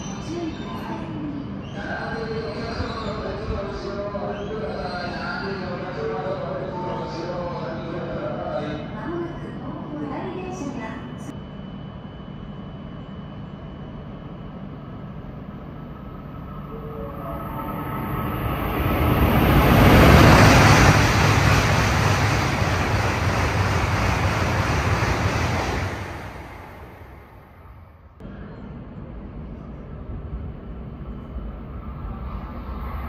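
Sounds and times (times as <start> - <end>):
high-speed train rushing past: 14.9 - 33.0.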